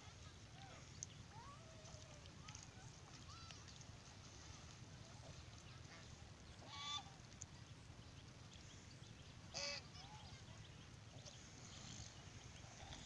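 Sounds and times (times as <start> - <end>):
goose honking: 6.6 - 7.1, 9.6 - 9.9.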